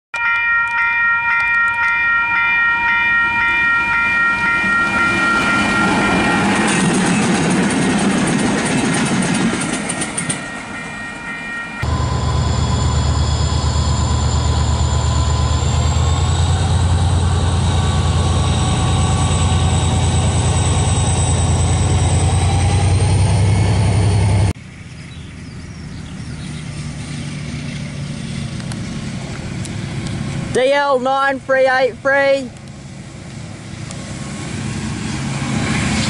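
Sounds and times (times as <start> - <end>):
distant train approaching: 0.2 - 36.0
locomotive engine drone: 0.2 - 36.0
thin high whine: 10.2 - 24.5.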